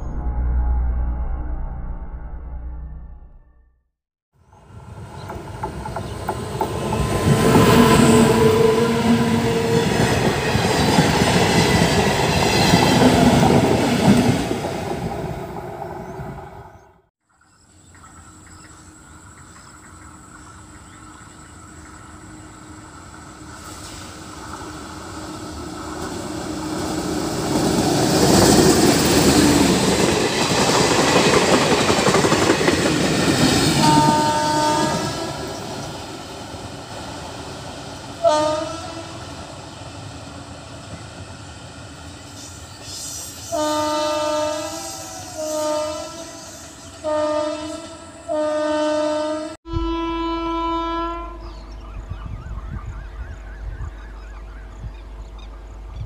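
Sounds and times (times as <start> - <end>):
train rushing past: 4.5 - 17.0, 20.0 - 49.6
electric locomotive horn blasts: 7.1 - 10.3, 33.7 - 35.6, 38.2 - 39.4, 43.4 - 51.6.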